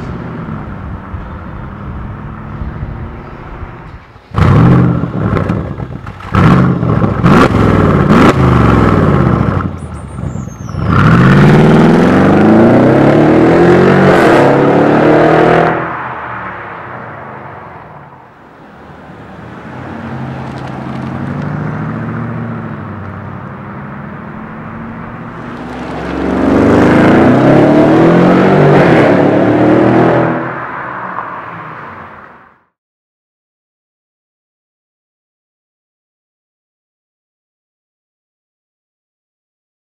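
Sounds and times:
car full-throttle drive-by: 0.0 - 32.7
exhaust cracks: 3.9 - 11.5, 25.2 - 27.5
car accelerating hard: 4.4 - 16.4, 24.4 - 32.2.

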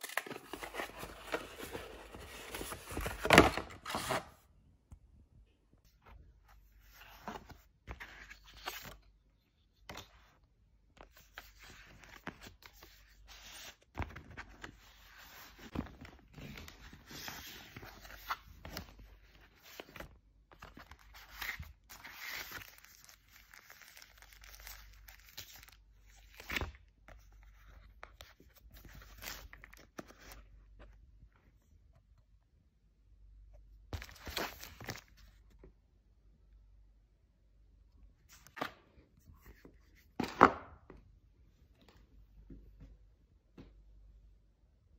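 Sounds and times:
cardboard and paper rustling: 0.0 - 4.4.

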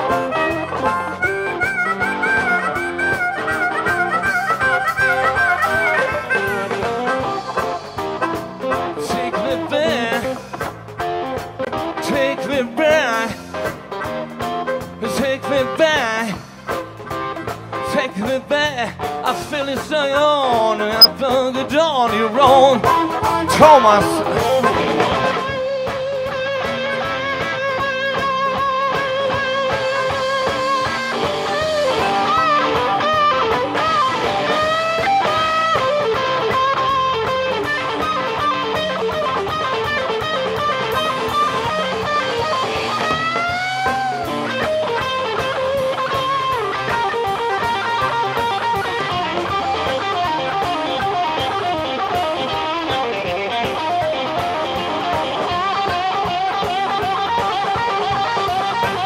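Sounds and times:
amplified harmonica: 0.0 - 10.7, 29.7 - 59.0
live blues band playing: 0.0 - 59.0.

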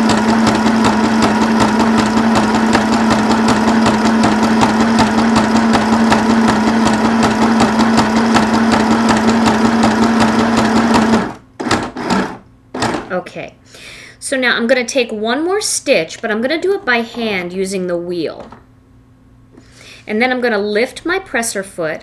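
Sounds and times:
sewing machine running: 0.0 - 13.0.

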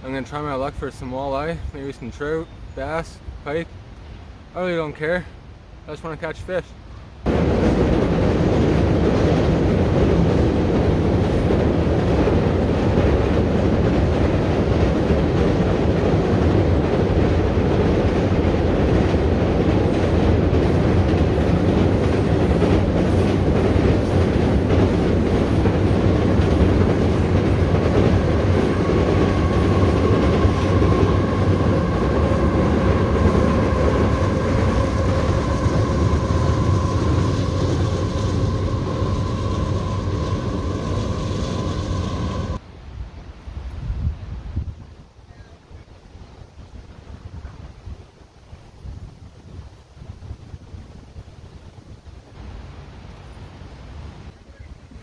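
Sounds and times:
freight train rumbling over bridge: 0.0 - 42.6.

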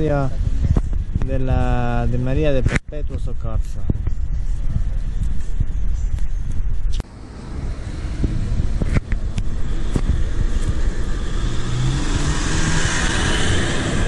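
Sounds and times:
pickup truck driving past: 7.2 - 14.0.

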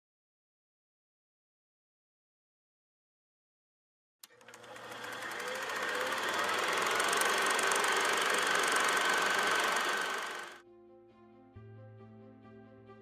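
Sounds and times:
film projector clattering: 4.2 - 10.6.

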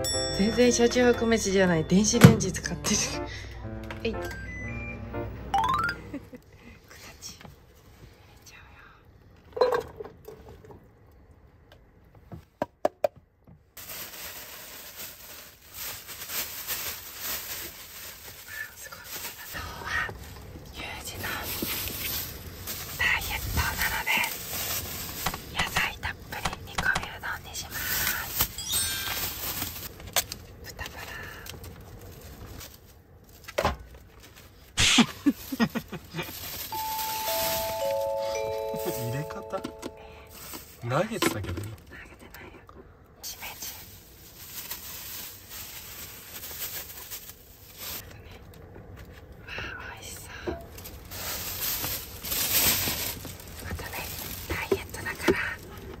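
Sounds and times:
descending chime sound effect: 0.0 - 6.4, 28.6 - 29.4, 36.7 - 40.3
plastic bag rustling: 13.8 - 26.2, 27.1 - 30.6, 31.6 - 41.2, 43.4 - 48.1, 50.7 - 56.0
plastic film crinkling: 13.8 - 30.7, 31.4 - 39.4, 43.5 - 48.1, 50.7 - 56.0.

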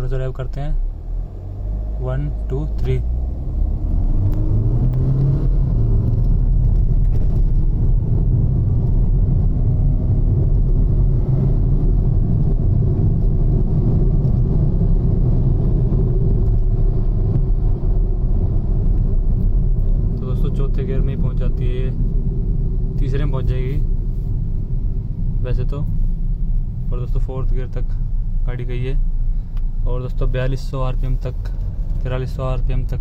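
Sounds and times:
diesel engine accelerating: 0.0 - 24.0.

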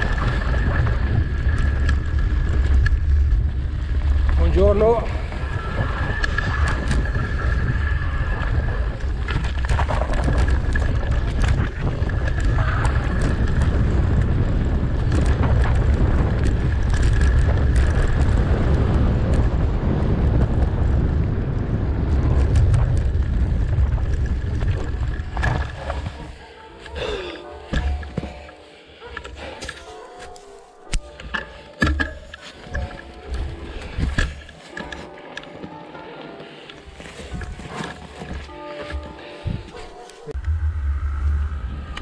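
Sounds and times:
wind buffeting microphone: 0.0 - 28.1
bike knocks and rattles: 8.5 - 19.7, 27.6 - 28.6, 29.2 - 35.0.

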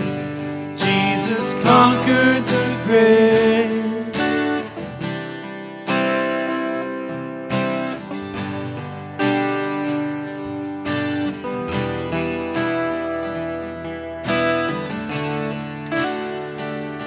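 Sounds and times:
acoustic guitars strumming chords: 0.0 - 17.0.

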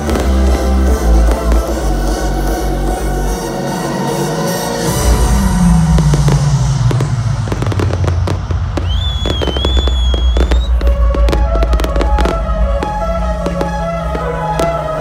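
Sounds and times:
fireworks bangs and crackles: 0.0 - 2.9, 4.9 - 15.0
electronic dance music: 0.1 - 15.0
high wavering whistle: 8.5 - 15.0.

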